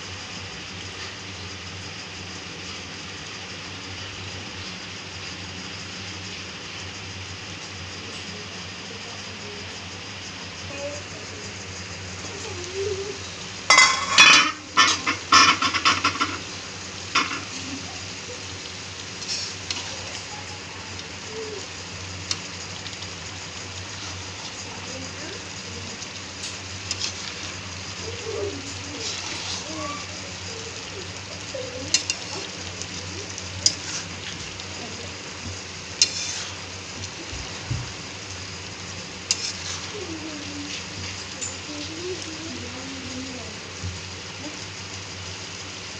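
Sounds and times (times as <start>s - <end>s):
steady low hum: 0.0s - 45.9s
food sizzling: 9.6s - 45.9s
spatula stirring in a pan: 12.0s - 43.1s
metal lid clattering on pan: 13.7s - 16.4s.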